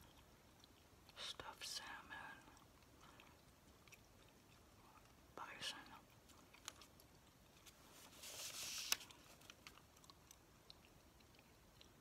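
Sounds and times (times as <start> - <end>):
paper flyer rustling: 7.6 - 9.6.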